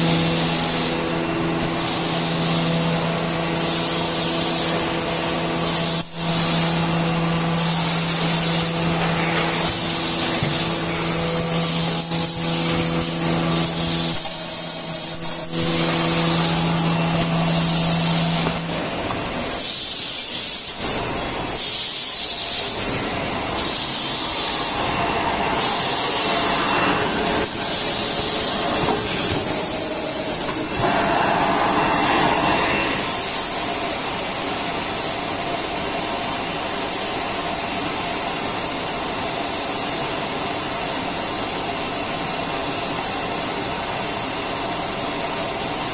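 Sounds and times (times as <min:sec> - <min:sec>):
machine hissing bursts: 0:00.0 - 0:34.3
steady machine hum: 0:00.0 - 0:35.2.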